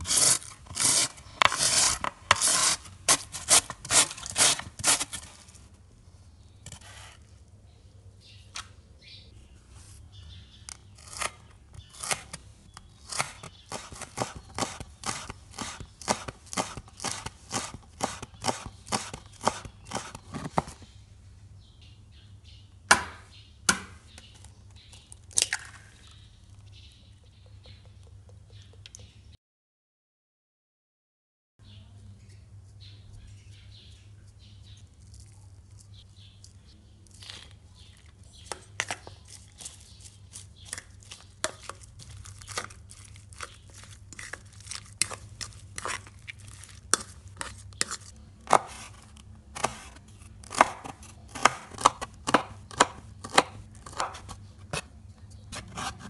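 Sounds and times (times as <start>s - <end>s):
carrot rasping on metal grater: 0.0s - 5.3s
knife chopping on wooden board: 13.1s - 20.7s, 22.9s - 24.0s, 49.6s - 54.9s.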